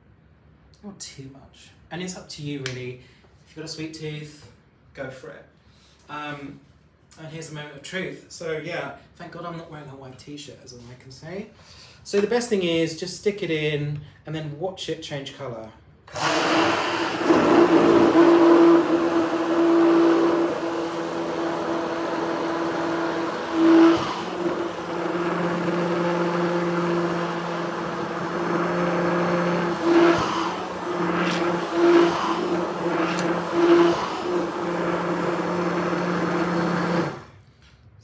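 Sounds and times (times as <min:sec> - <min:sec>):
hand blender running: 0:16.1 - 0:37.3.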